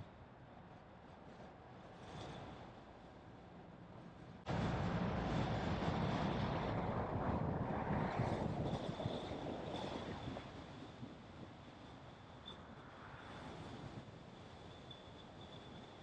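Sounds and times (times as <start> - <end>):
rush of vehicle and road noise: 4.4 - 16.0.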